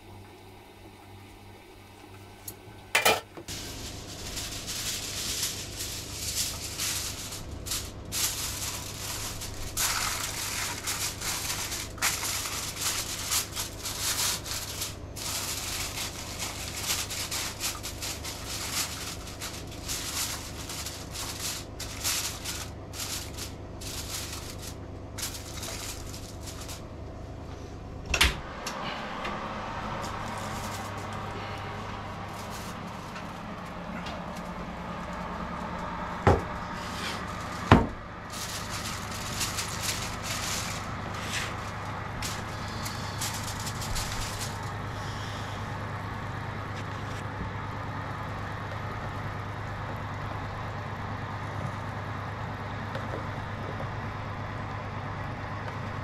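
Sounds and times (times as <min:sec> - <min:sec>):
steady low hum: 0:00.0 - 0:56.0
aluminium foil crinkling: 0:03.5 - 0:27.0, 0:29.7 - 0:47.3.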